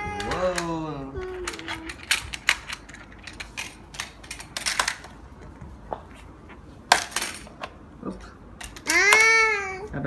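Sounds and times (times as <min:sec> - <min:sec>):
toy cars and track clicking: 0:00.0 - 0:05.1, 0:08.6 - 0:09.5.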